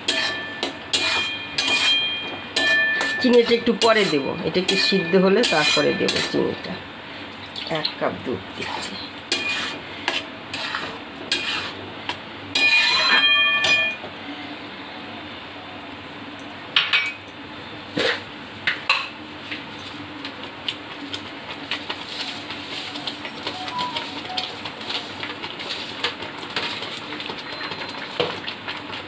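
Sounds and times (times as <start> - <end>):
metal spatula scraping a pan: 0.0 - 6.5, 8.6 - 11.8, 12.5 - 13.8.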